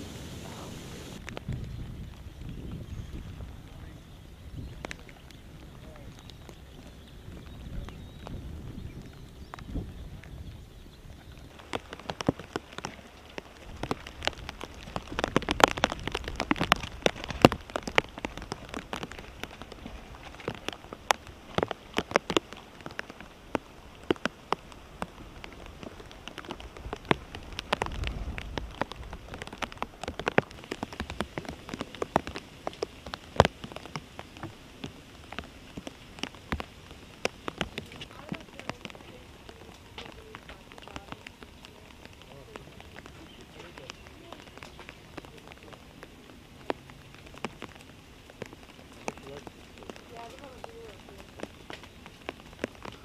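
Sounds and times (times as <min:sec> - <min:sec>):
steady hiss: 0:00.0 - 0:01.2
lava crackling and popping: 0:00.0 - 0:53.0.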